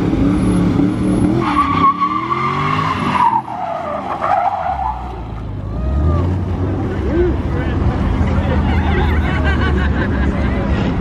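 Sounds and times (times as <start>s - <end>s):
tyres squealing on asphalt: 0.2s - 7.4s.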